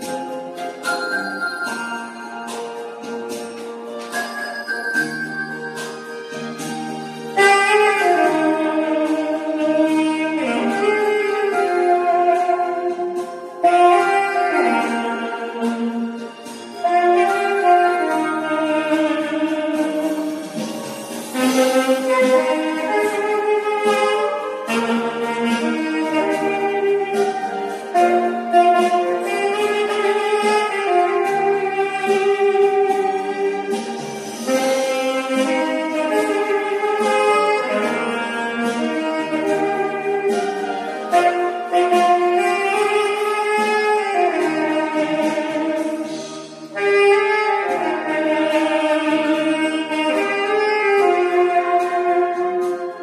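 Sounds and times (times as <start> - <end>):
backing track chords: 0.0 - 53.0
saxophone melody: 0.0 - 53.0.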